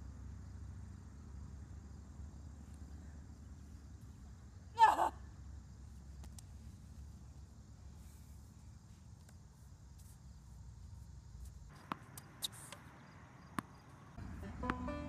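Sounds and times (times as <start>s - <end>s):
racket striking tennis ball: 11.7s - 15.0s.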